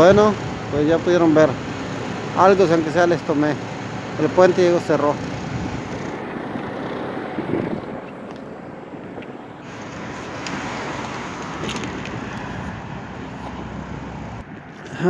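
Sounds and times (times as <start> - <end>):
road traffic rushing: 0.0 - 15.0.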